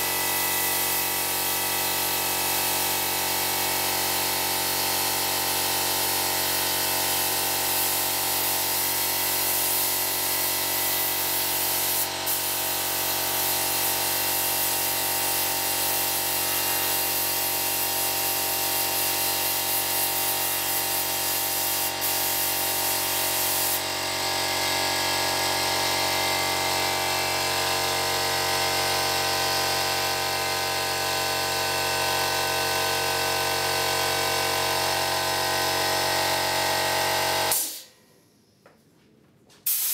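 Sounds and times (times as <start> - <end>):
air compressor running: 0.0 - 37.9, 39.6 - 39.9
spray gun hissing: 5.8 - 23.8, 39.7 - 39.9.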